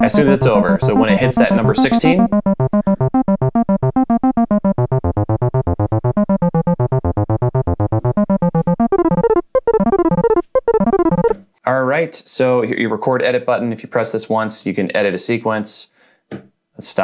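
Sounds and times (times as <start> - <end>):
sequenced synth bass line: 0.0 - 11.4.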